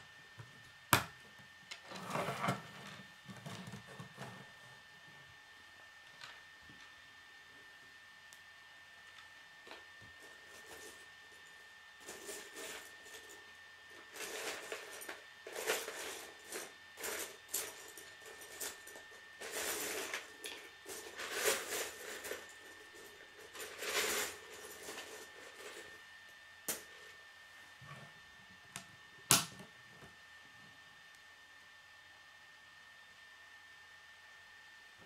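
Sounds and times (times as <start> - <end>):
plastic pieces rustling and clattering: 19.4 - 22.5.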